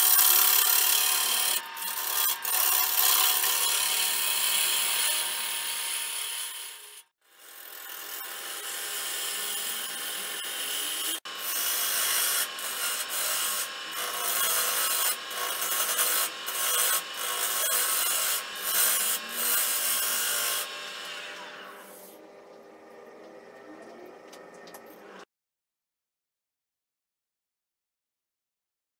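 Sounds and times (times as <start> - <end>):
lathe tool scraping wood: 0.0 - 22.2.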